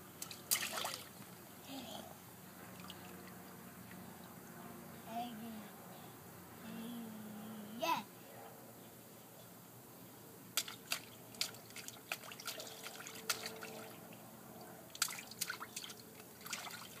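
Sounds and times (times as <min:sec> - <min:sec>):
baby splashing water in pool: 0:00.2 - 0:01.2, 0:10.6 - 0:14.2, 0:14.9 - 0:17.0.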